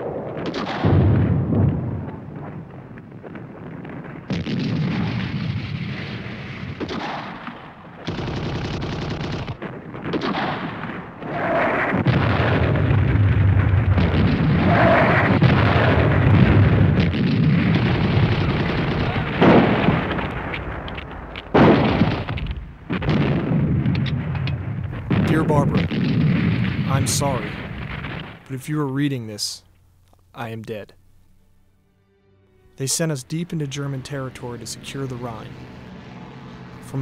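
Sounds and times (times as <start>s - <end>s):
gunfire: 0.0s - 28.5s
explosions: 0.0s - 29.2s, 32.8s - 37.0s.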